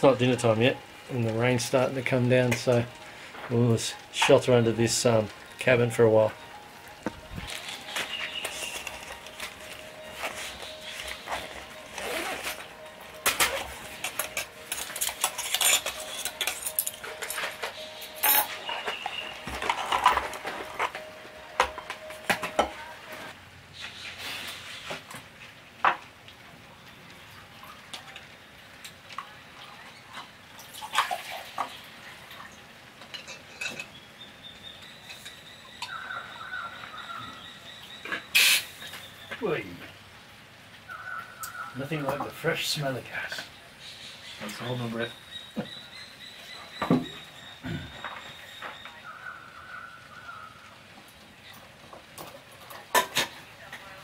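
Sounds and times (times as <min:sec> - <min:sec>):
metal cookware clinking: 0:13.0 - 0:22.8, 0:33.0 - 0:34.0.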